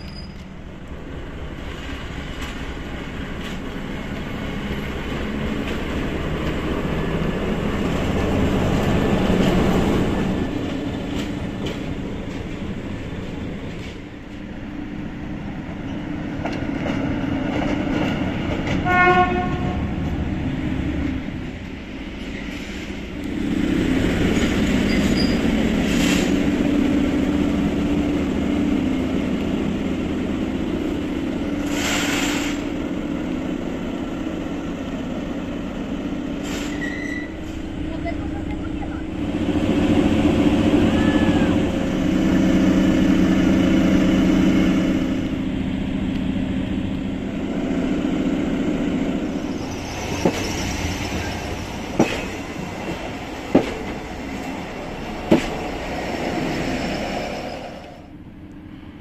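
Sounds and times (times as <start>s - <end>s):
locomotive horn blast: 18.8s - 20.0s
locomotive diesel engine running: 37.2s - 58.6s.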